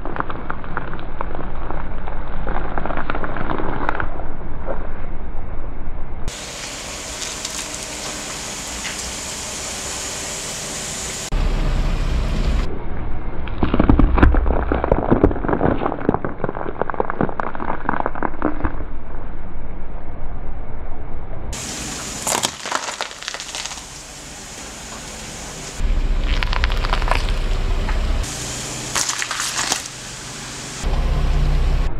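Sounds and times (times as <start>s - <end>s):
car tyre rolling rumble: 6.3s - 12.7s, 21.5s - 31.9s
broccoli crunching and snapping: 22.2s - 23.9s, 26.3s - 27.5s, 29.0s - 29.9s.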